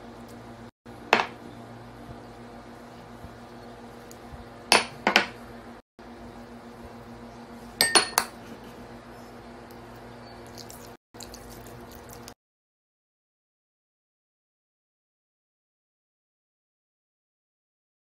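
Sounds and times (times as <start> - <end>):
spoon clinking glass bowl: 7.8 - 8.3.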